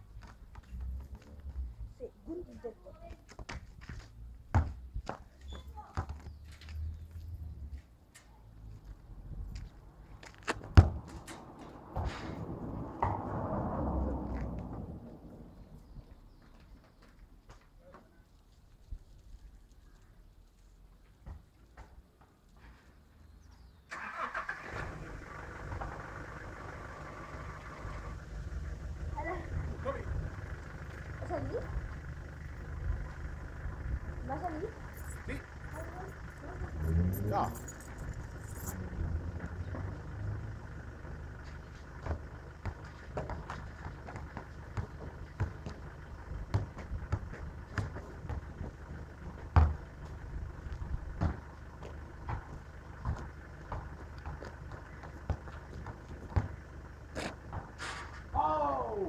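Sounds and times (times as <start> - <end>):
soccer ball thuds: 3.4 - 5.3, 10.4 - 11.3, 42.0 - 48.8, 49.4 - 57.8
vehicle engine starting and running: 8.6 - 16.0, 23.8 - 59.0.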